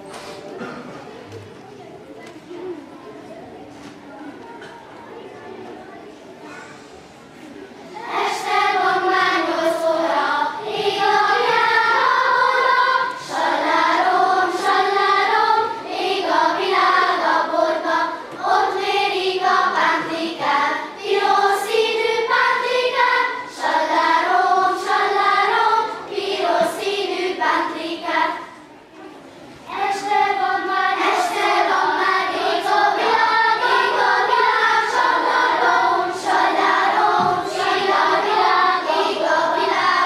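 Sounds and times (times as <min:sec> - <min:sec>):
children's choir singing: 0:00.0 - 0:01.7, 0:02.5 - 0:40.0.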